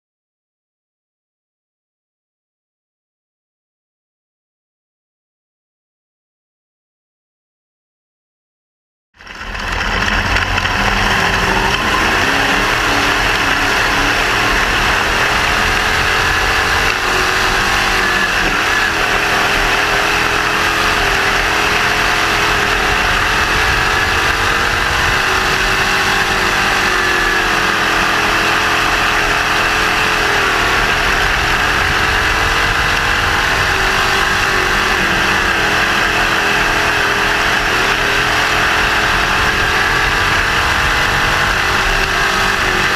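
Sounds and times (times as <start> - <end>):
race car engine running: 9.2 - 42.9.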